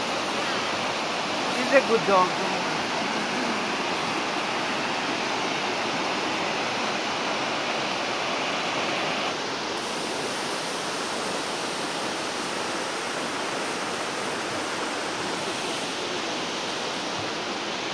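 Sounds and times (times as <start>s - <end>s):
water rushing over rocks: 0.0s - 17.9s.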